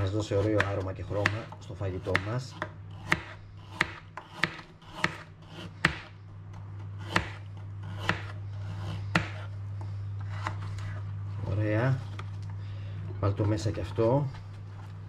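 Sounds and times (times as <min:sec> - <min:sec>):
steady low hum: 0:00.0 - 0:15.0
knife slicing carrot on board: 0:00.1 - 0:06.1, 0:07.0 - 0:09.5.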